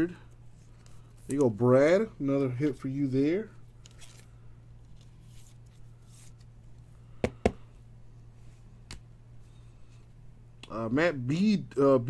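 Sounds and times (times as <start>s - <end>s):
steady low hum: 0.0s - 12.0s
cards rustling: 3.7s - 6.8s.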